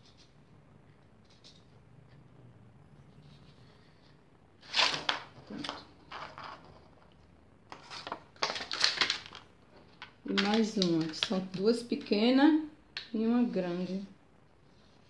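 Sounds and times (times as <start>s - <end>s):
plastic bottle crackling: 7.7s - 12.1s.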